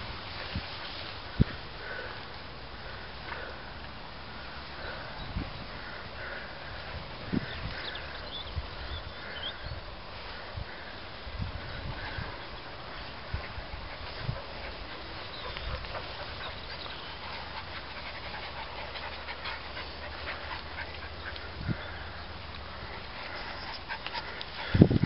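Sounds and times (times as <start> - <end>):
small rustles and ticks: 0.0 - 25.0
dogs panting: 4.7 - 9.6, 10.2 - 25.0.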